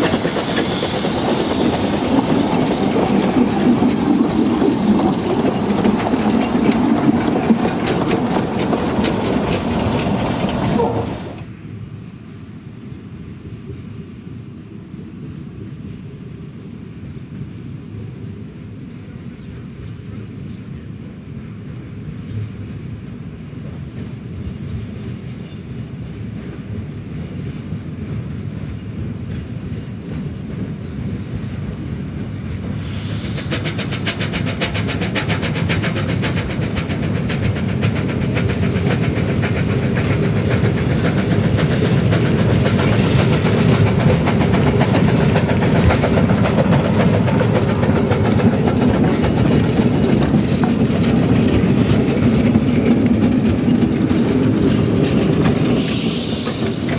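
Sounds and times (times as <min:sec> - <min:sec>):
steam hiss: 0:00.0 - 0:11.5, 0:30.7 - 0:52.8, 0:53.6 - 0:56.9
train clattering on track: 0:00.0 - 0:11.7, 0:15.6 - 0:56.9
low train rumble: 0:00.0 - 0:56.9.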